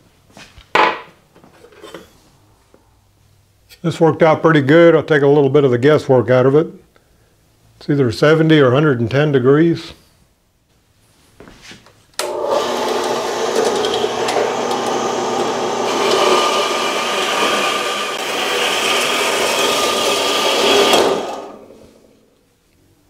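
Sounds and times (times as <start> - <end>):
bandsaw cutting metal bar: 12.2 - 22.2.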